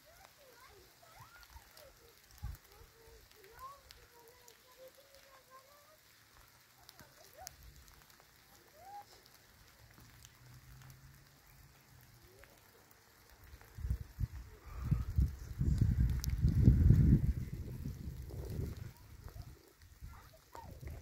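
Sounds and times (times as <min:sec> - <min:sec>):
light crackling ticks: 0:00.0 - 0:21.0
wind buffeting microphone: 0:02.2 - 0:02.9, 0:13.4 - 0:21.0.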